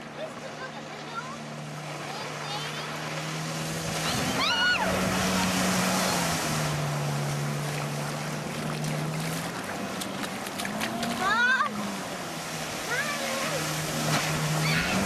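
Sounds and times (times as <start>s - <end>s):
jet ski engine passing: 0.0s - 15.0s.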